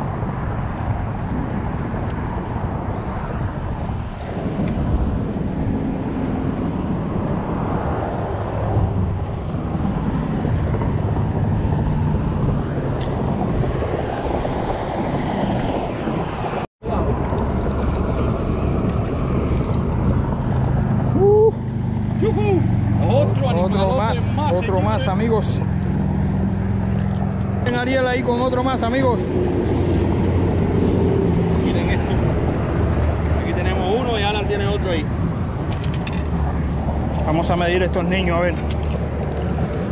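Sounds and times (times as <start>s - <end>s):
low outdoor rumble by water: 0.0s - 22.6s.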